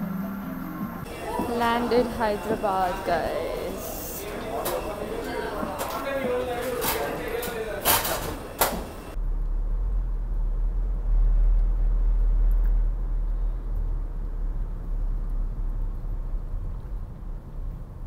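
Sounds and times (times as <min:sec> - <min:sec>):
car engine and road noise: 0:09.1 - 0:18.0.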